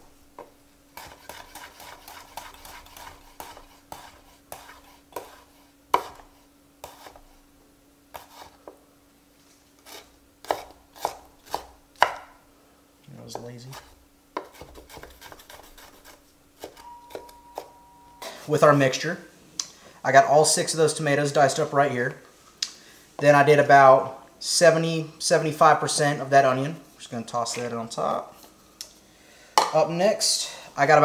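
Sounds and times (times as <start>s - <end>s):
knife chopping on wooden board: 0.4s - 7.3s, 9.9s - 12.3s, 14.4s - 17.7s.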